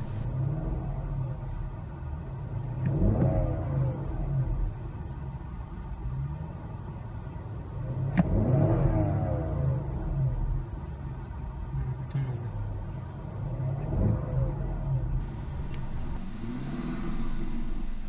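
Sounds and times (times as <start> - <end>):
car engine revving: 0.0 - 1.5, 2.4 - 5.0, 7.8 - 10.8, 13.3 - 18.0.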